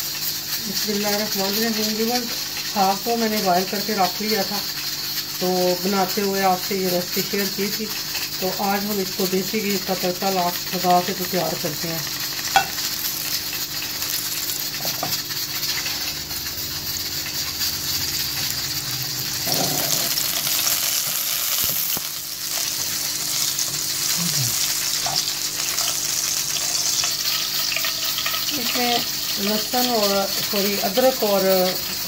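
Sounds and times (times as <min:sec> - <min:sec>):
ghee sizzling in a pan: 0:00.0 - 0:32.0
metal spoon stirring in pan: 0:12.3 - 0:32.0.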